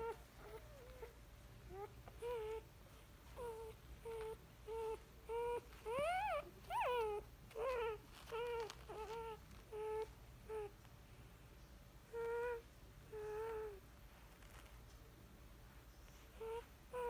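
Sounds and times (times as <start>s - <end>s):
puppies whimpering: 3.3s - 10.7s.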